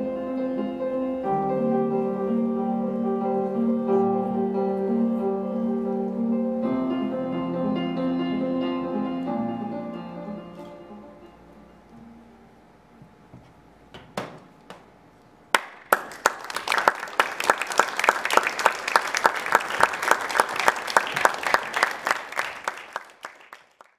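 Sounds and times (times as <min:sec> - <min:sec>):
audience applause: 0:15.5 - 0:23.9.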